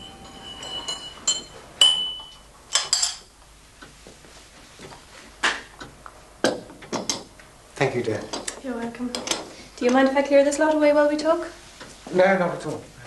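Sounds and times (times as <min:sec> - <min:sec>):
china and glass clinking: 0:00.0 - 0:03.3.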